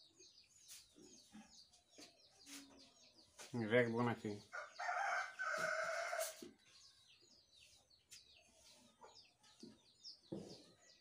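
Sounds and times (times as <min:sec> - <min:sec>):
small birds chirping: 0:00.0 - 0:11.0
rooster crowing: 0:04.6 - 0:06.4.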